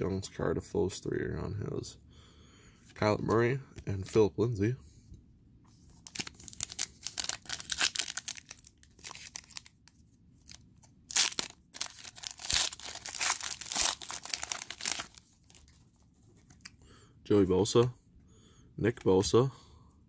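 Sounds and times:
foil wrapper crinkling and tearing: 6.0 - 15.7.

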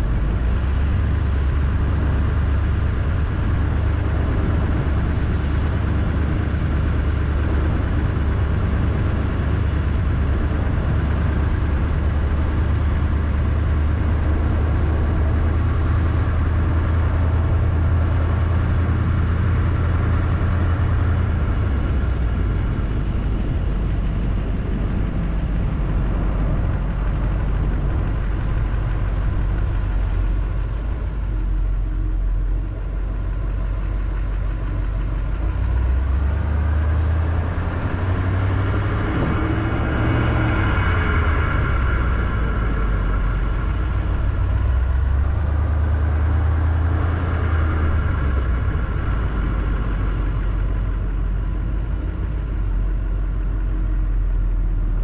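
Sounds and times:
vehicle engine rumble: 0.0 - 55.0.

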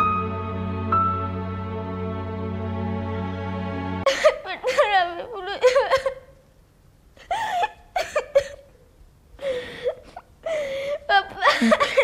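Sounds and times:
boy giggling: 4.1 - 6.4, 11.1 - 12.0.

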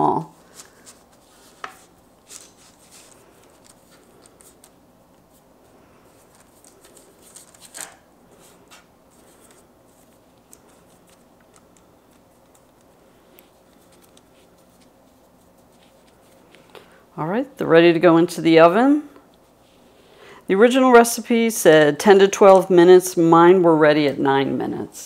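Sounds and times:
low steady hum: 0.0 - 25.0
parchment paper rustling: 0.1 - 17.0.

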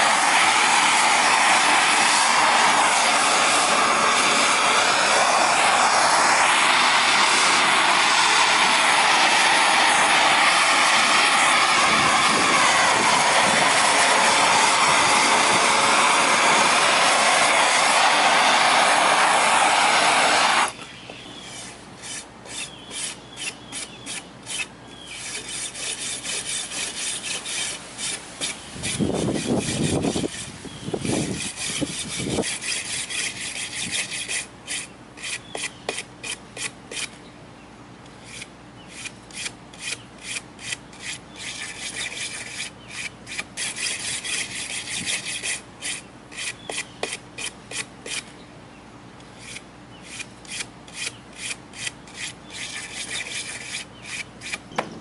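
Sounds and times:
brush scrubbing wooden board: 0.0 - 20.7, 21.5 - 37.1, 38.3 - 48.3, 49.4 - 54.6
low rumbling noise: 0.0 - 20.8.

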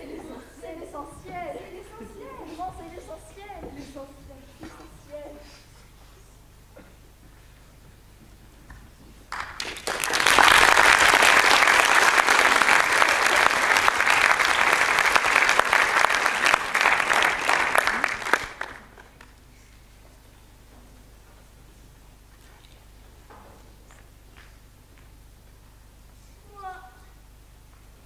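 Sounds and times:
audience applauding: 9.3 - 19.4.

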